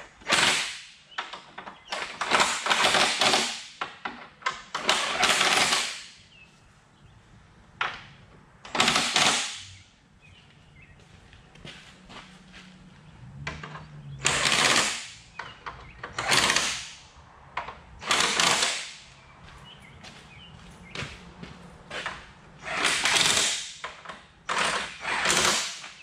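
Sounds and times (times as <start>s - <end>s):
impact gun rattling: 8.7s - 9.8s.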